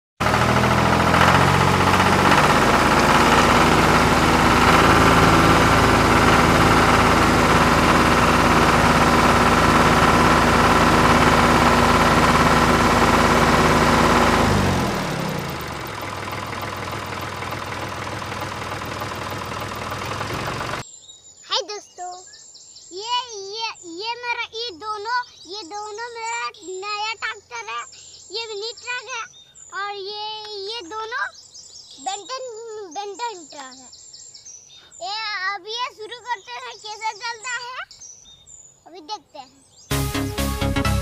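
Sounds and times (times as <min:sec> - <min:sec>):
tractor engine idling: 0:00.2 - 0:20.8.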